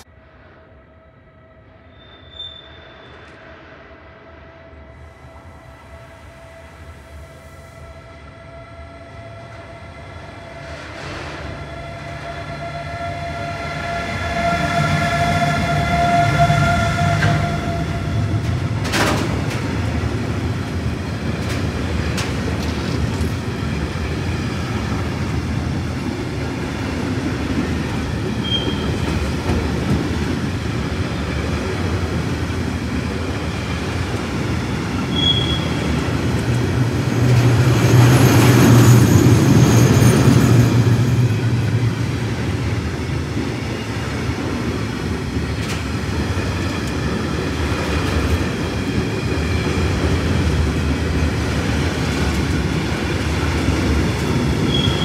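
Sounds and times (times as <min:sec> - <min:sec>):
faint high squeal: 0:01.1 - 0:03.7, 0:28.4 - 0:29.1, 0:35.0 - 0:36.0, 0:54.6 - 0:55.0
brief high squeaks: 0:01.9 - 0:03.4, 0:28.4 - 0:29.0, 0:35.1 - 0:35.9, 0:54.7 - 0:55.0
freight train wheels rumbling: 0:02.6 - 0:55.0.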